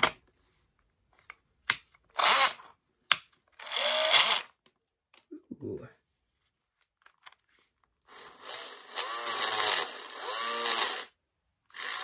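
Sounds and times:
cordless drill motor running rough: 0:03.6 - 0:04.5, 0:08.1 - 0:12.0.

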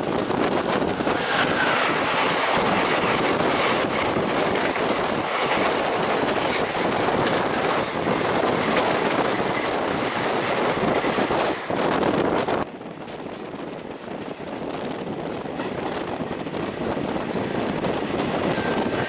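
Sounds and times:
passing train rushing: 0:00.0 - 0:19.0
train wheels clattering: 0:00.4 - 0:19.0.

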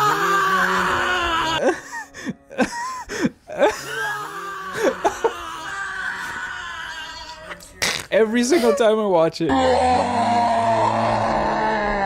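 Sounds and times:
man's breathy cries: 0:01.5 - 0:06.4.

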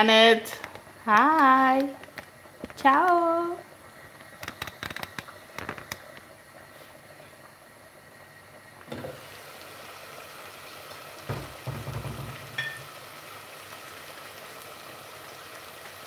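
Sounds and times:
sauce sizzling and bubbling: 0:00.0 - 0:16.0
knocks: 0:11.3 - 0:12.5.

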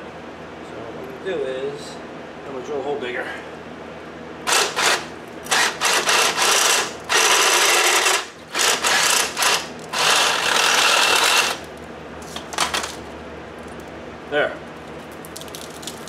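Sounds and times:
cordless drill whining: 0:04.5 - 0:11.6.

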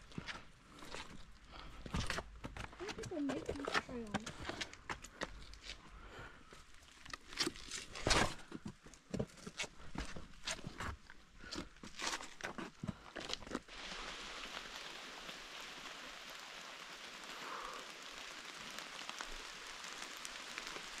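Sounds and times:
footsteps on a trail: 0:00.0 - 0:14.6
steady hiss: 0:13.7 - 0:21.0.

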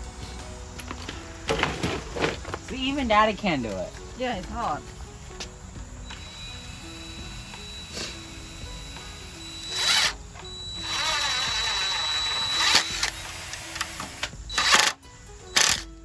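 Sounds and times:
background music: 0:00.0 - 0:16.0
power drill driving screws: 0:06.0 - 0:15.9.

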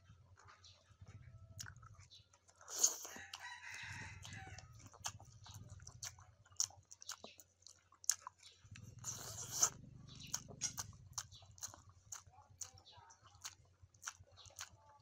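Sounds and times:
person chewing noodles: 0:00.1 - 0:15.0
rooster crowing: 0:03.1 - 0:04.8.

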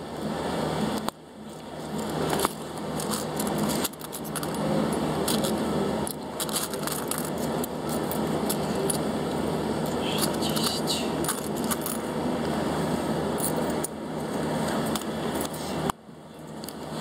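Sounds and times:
bus engine humming: 0:00.0 - 0:17.0
rattles and clicks: 0:01.0 - 0:12.1.

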